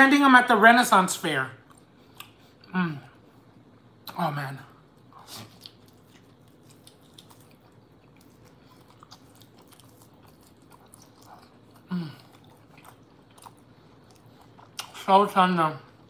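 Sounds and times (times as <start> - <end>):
close-miked chewing: 1.6 - 2.7, 5.0 - 15.1
person humming mm: 11.9 - 12.2.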